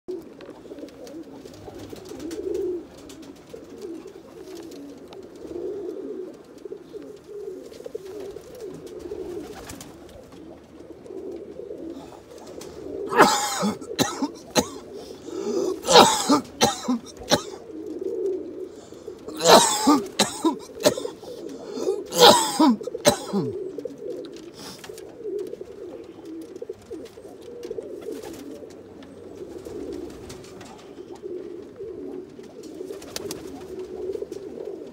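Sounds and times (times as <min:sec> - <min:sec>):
pigeons cooing: 0:00.1 - 0:34.9.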